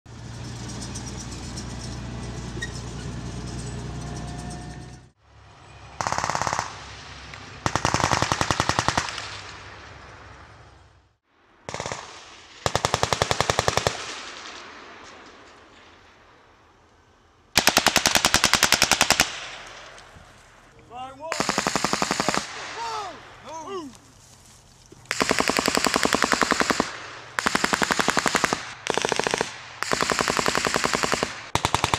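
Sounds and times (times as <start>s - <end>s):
automatic weapons firing: 6.0s - 6.8s, 7.6s - 9.5s, 11.7s - 14.7s, 17.6s - 19.8s, 21.3s - 23.2s, 25.1s - 31.9s.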